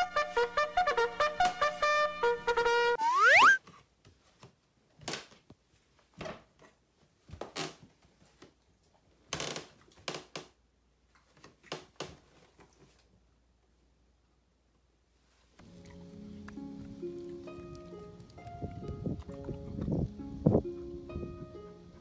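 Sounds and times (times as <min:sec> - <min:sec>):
rising whistle sound effect: 0:03.0 - 0:03.6.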